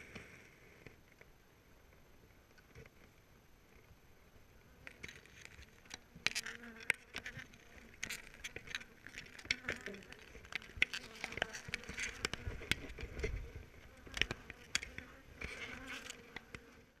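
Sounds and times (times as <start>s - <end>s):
honeybees buzzing: 4.8s - 17.0s.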